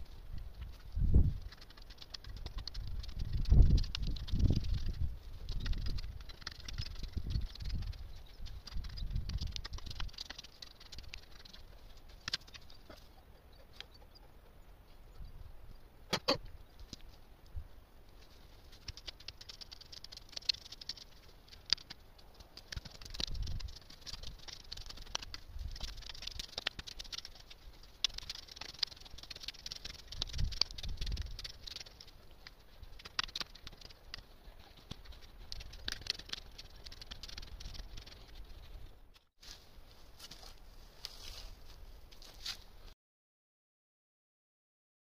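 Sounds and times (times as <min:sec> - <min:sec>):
crackling clicks of leaves: 0:00.0 - 0:13.0, 0:18.1 - 0:38.5
hand hoe scraping dry soil: 0:00.0 - 0:13.2, 0:18.2 - 0:42.7.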